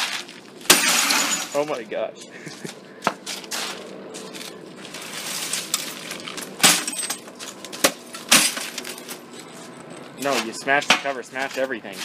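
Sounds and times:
broken glass clinking and crunching: 0:00.0 - 0:01.8, 0:04.3 - 0:11.6.

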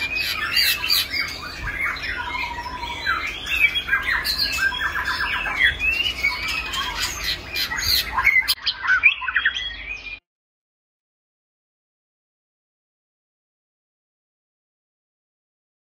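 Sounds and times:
bird singing whistled phrases: 0:00.0 - 0:10.2.

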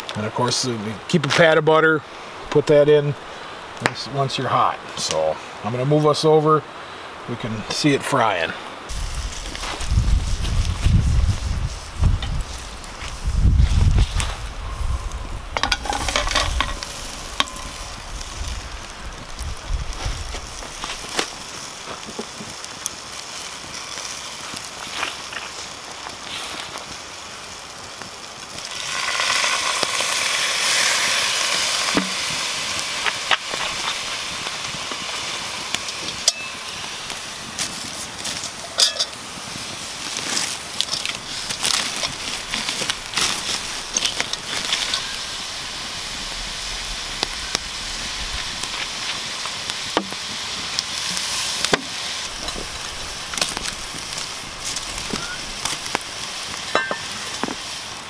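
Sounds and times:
food sizzling in a pan: 0:07.1 - 0:58.0
clicks of stirring and pan handling: 0:15.6 - 0:17.9, 0:38.3 - 0:39.2.

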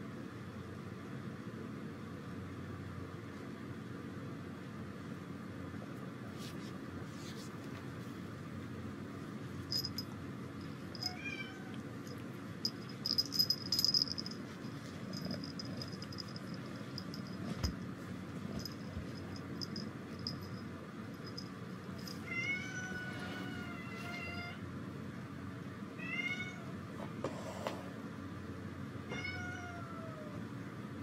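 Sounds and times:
low room hum: 0:00.0 - 0:31.0
collar bell jingling: 0:09.7 - 0:11.4, 0:12.0 - 0:17.9, 0:18.5 - 0:22.3
cat meowing: 0:11.0 - 0:11.8, 0:29.1 - 0:30.4.

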